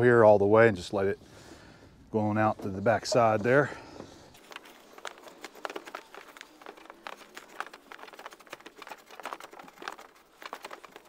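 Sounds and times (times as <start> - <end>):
cable rustling and scraping through wall: 2.2 - 11.0.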